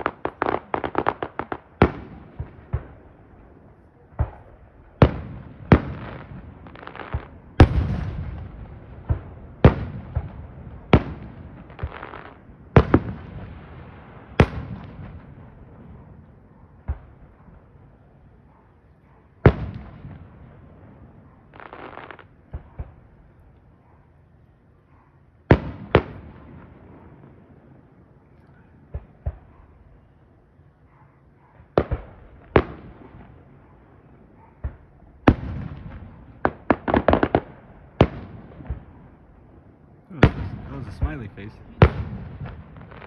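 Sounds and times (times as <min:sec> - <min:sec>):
crackling firework pops: 0:00.0 - 0:03.0.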